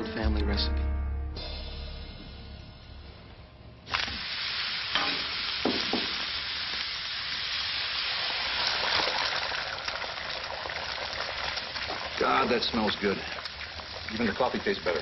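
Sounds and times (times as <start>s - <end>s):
food sizzling on griddle: 3.9s - 15.0s.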